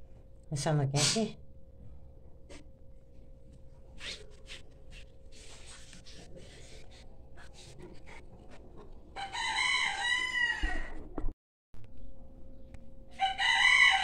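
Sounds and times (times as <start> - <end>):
rooster crowing: 9.2 - 11.2, 13.1 - 14.0
faint steady hum: 11.8 - 14.0.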